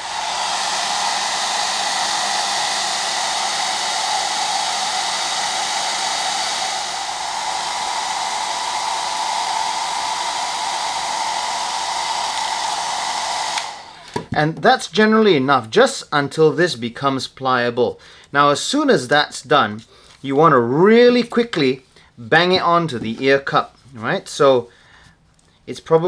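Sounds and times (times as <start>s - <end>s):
hair dryer running: 0.0s - 14.2s.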